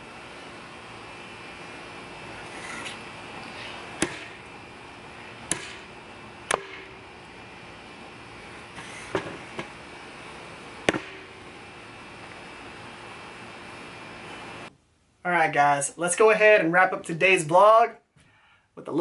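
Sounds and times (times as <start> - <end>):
knife chopping into wooden board: 4.0 - 4.4.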